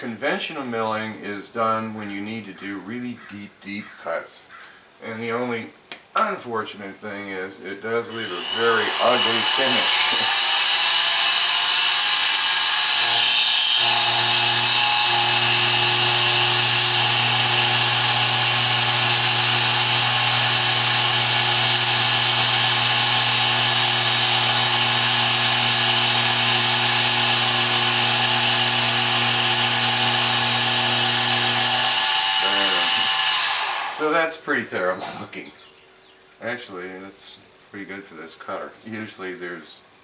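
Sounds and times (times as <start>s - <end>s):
milling cutter hissing on metal: 8.1s - 34.1s
motor hum: 8.4s - 34.0s.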